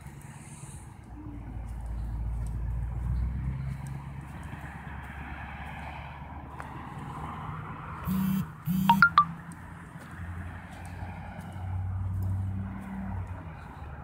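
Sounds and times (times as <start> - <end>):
road traffic: 0.0 - 14.0
vehicle passing by: 0.0 - 14.0
short bursts of noise: 8.1 - 9.3
quick high beeps: 8.1 - 9.4.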